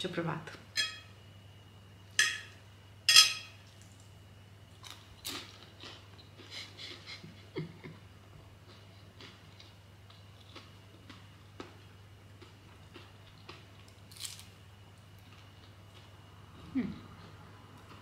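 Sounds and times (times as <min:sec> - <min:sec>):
pastry crackling as broken: 0:13.8 - 0:14.5.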